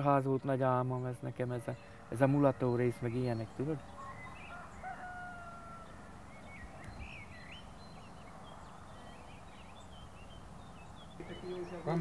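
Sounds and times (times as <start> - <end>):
rooster crowing: 3.9 - 6.1.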